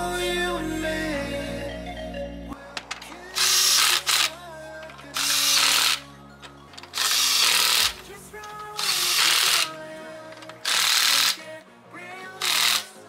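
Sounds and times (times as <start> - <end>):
impact wrench bursts: 3.4 - 4.3, 5.2 - 6.0, 6.8 - 8.1, 8.8 - 9.8, 10.4 - 11.4, 12.4 - 12.9.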